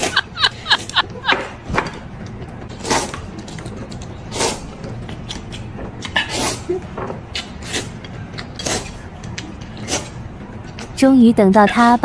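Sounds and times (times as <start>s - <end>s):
noodles being slurped: 4.3s - 4.8s.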